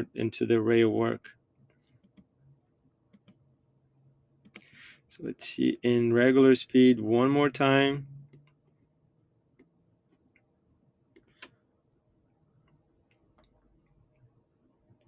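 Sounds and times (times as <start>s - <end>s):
faint small clicks: 1.6s - 2.3s, 11.1s - 11.6s.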